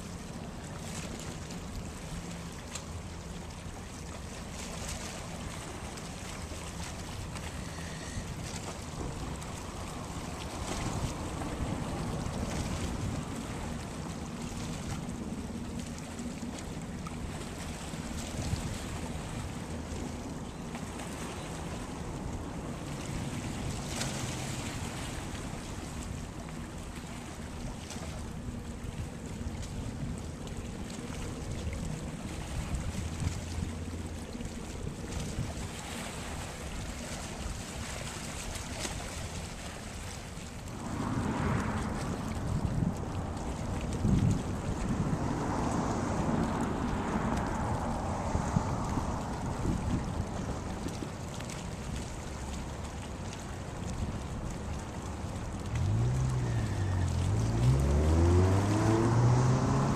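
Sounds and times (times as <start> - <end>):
water lapping and splashing: 0.0 - 59.9
wind rumbling on microphone: 3.6 - 59.9
wind buffeting microphone: 31.4 - 52.9
low rumble: 40.4 - 50.7.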